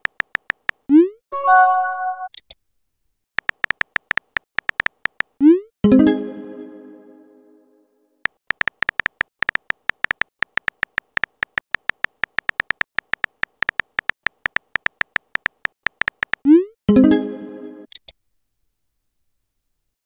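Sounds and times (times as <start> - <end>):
keyboard click taps: 8.5 - 16.4.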